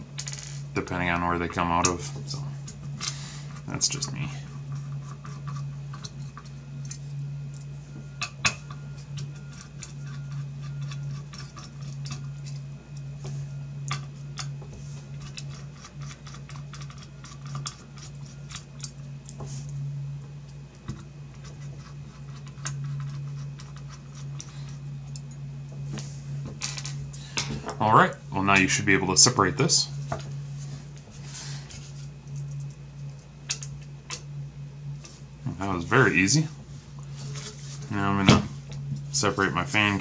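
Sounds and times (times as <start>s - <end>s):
steady low hum: 0.0s - 40.0s.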